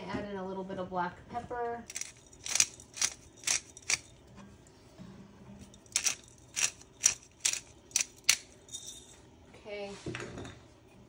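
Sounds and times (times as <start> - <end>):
pepper grinder crunching: 1.9 - 4.2, 5.7 - 8.7.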